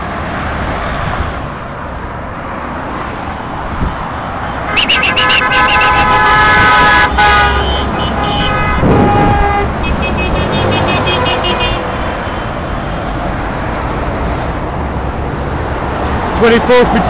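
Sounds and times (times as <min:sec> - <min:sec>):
motorway traffic rushing: 0:00.0 - 0:17.0
short horn toots: 0:04.7 - 0:11.9
long horn blast: 0:04.7 - 0:12.4.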